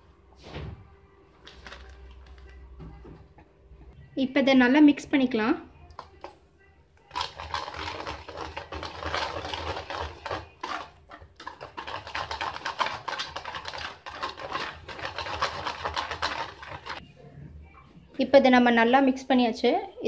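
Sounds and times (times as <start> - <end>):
metal spoon scraping steel bowl: 7.2 - 17.0.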